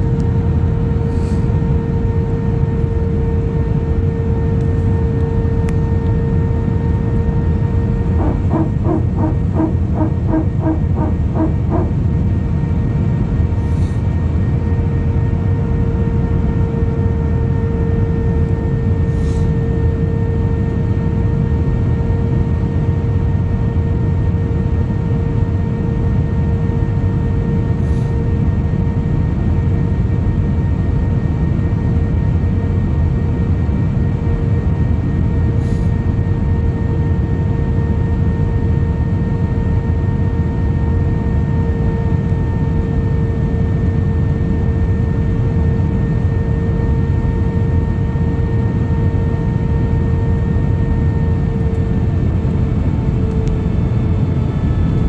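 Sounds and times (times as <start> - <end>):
airflow and jet engine roar: 0.0 - 55.0
steady hum tone: 0.0 - 55.0.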